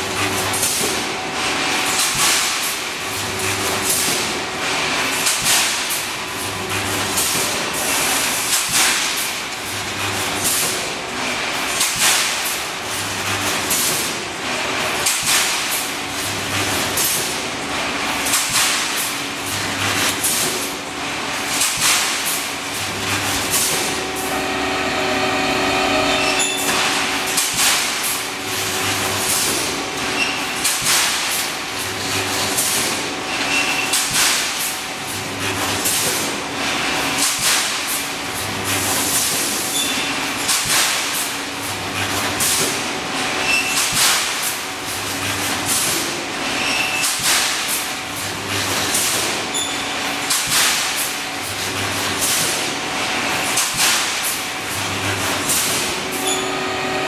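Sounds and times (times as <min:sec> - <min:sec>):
welding machine low hum: 0:00.0 - 0:40.2, 0:41.0 - 0:57.0
steady machine whine: 0:22.8 - 0:30.0, 0:56.1 - 0:57.0.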